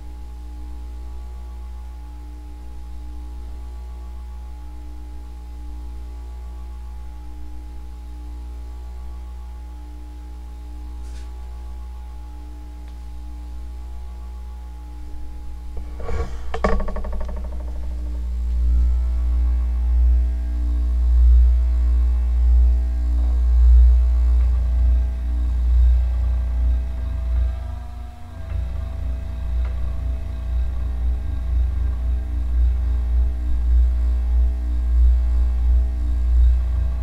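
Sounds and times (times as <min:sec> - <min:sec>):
ceiling fan motor humming: 0:00.0 - 0:37.0
low pulsing rumble: 0:00.0 - 0:37.0
knocks: 0:15.8 - 0:18.3.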